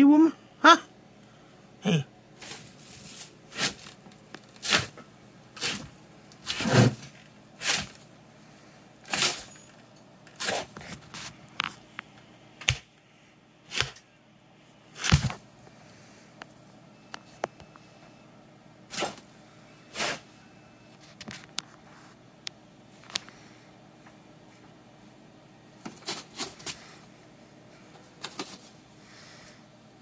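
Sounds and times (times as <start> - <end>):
short rustling scrapes: 5.6 - 8.0.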